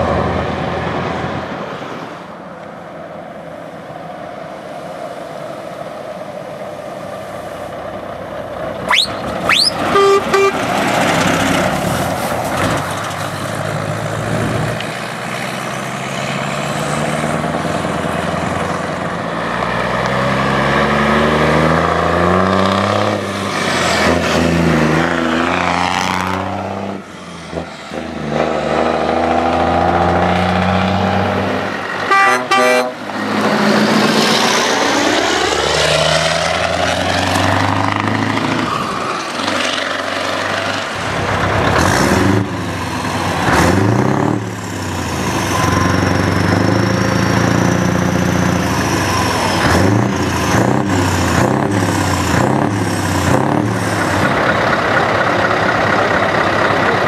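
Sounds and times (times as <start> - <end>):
diesel truck engines driving past: 0.0 - 57.0
truck air horn: 8.9 - 10.7, 32.0 - 33.1.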